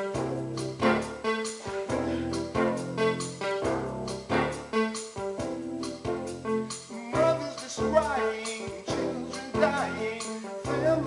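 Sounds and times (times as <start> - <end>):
instrumental accompaniment: 0.0 - 11.0
man singing: 6.9 - 11.0.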